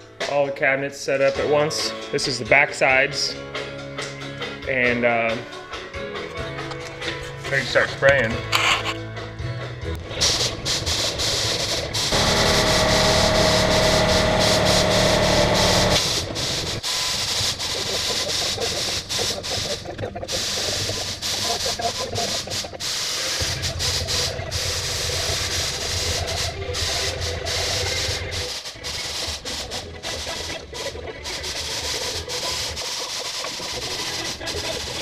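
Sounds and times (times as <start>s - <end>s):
paint sprayer hissing with motor whine: 10.2s - 35.0s.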